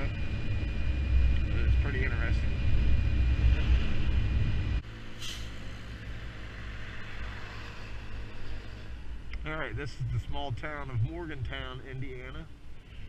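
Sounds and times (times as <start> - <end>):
brief hiss: 5.2 - 5.6.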